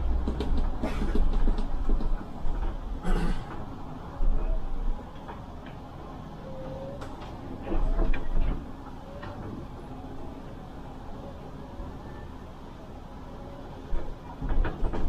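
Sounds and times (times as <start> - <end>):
bus running noise: 0.0 - 15.0.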